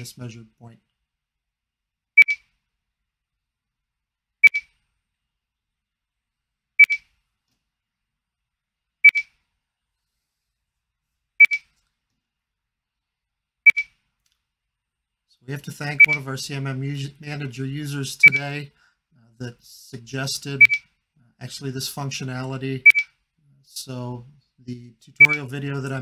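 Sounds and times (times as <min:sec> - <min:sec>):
high-pitched double beeps: 0:02.2 - 0:02.4, 0:04.4 - 0:04.7, 0:09.0 - 0:09.3, 0:20.6 - 0:20.9, 0:22.9 - 0:23.1.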